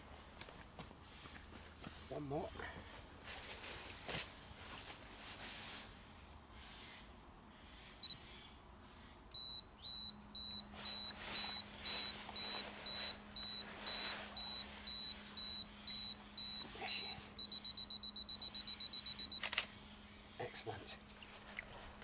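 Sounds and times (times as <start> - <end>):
camera self-timer beeps: 9.3 - 19.7.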